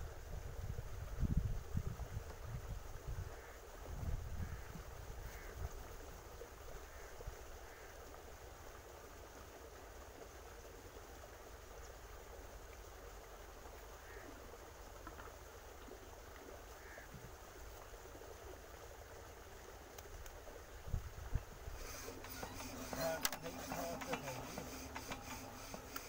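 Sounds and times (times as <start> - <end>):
wind on microphone: 0.0 - 5.8, 20.8 - 21.8.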